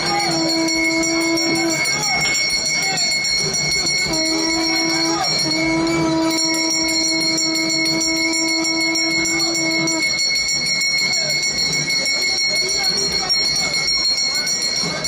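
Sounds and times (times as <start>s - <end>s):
conch shell blowing: 0.0s - 10.5s
crowd noise: 0.0s - 15.0s.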